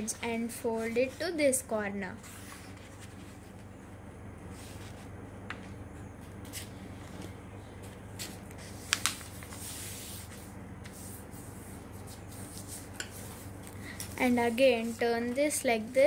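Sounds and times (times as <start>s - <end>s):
steady low hum: 0.0s - 16.0s
paper folding crackles and taps: 6.3s - 9.6s
paper rustling hiss: 8.1s - 15.8s.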